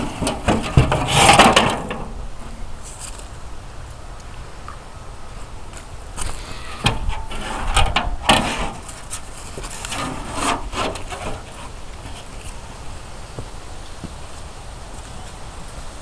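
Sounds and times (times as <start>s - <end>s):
metal scraping and knocking on wood: 0.0s - 2.5s, 6.2s - 12.6s.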